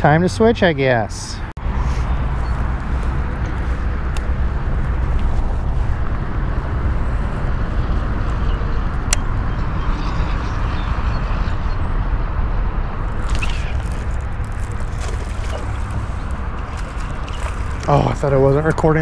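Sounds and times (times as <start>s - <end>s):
low rumble of road traffic: 0.0s - 19.0s.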